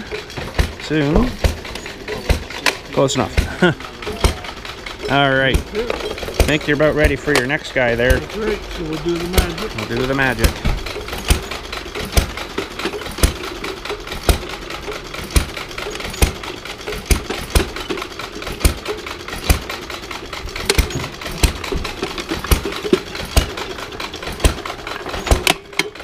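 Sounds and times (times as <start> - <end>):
hay press clattering: 0.0 - 26.0.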